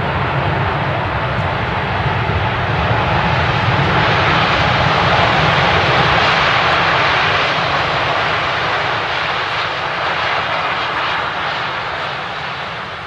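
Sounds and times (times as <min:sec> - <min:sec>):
jet engines at high power: 0:00.0 - 0:13.0.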